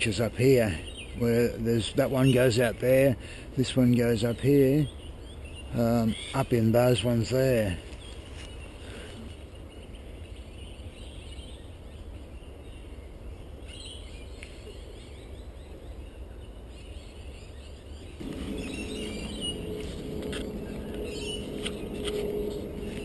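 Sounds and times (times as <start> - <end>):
bird chirps: 13.7 - 23.0
low steady rumble: 18.2 - 23.0
steady low hum: 18.2 - 23.0.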